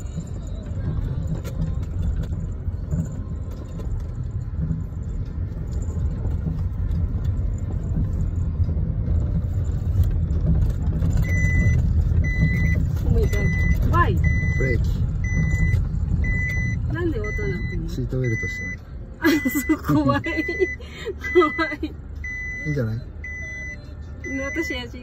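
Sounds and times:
car engine and tyre rumble: 0:00.0 - 0:25.0
electronic warning beep: 0:11.2 - 0:18.8, 0:19.4 - 0:25.0.

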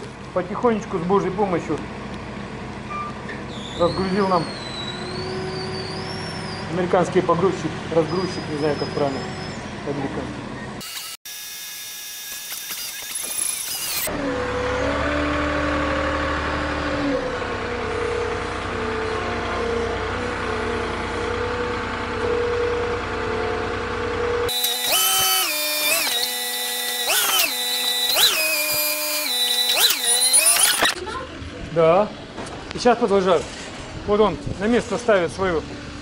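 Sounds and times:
forklift engine revving: 0:01.9 - 0:10.8, 0:13.5 - 0:31.0.

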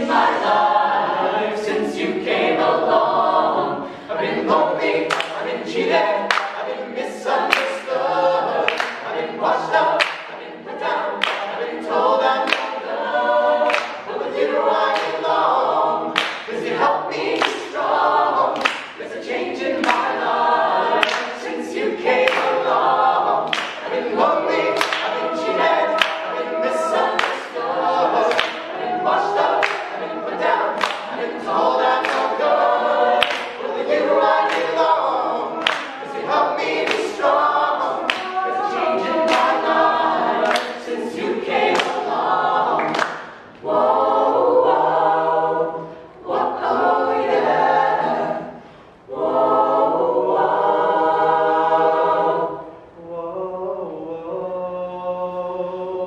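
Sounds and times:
mixed vocal group singing gospel: 0:00.0 - 0:56.0
hand claps: 0:05.1 - 0:05.4, 0:06.3 - 0:06.6, 0:07.5 - 0:07.9, 0:08.7 - 0:09.1, 0:10.0 - 0:10.4, 0:11.2 - 0:11.6, 0:12.4 - 0:12.8, 0:13.7 - 0:14.0, 0:14.9 - 0:15.2, 0:16.2 - 0:16.7, 0:17.3 - 0:17.7, 0:18.6 - 0:19.1, 0:19.8 - 0:20.2, 0:21.0 - 0:21.4, 0:22.2 - 0:22.6, 0:23.4 - 0:24.0, 0:24.8 - 0:27.6, 0:28.3 - 0:28.8, 0:29.6 - 0:30.0, 0:30.8 - 0:31.2, 0:31.9 - 0:32.4, 0:33.2 - 0:33.7, 0:34.4 - 0:34.9, 0:35.6 - 0:36.2, 0:36.8 - 0:37.3, 0:38.0 - 0:38.4, 0:39.2 - 0:39.7, 0:40.4 - 0:40.9, 0:41.7 - 0:42.0, 0:42.8 - 0:43.4.

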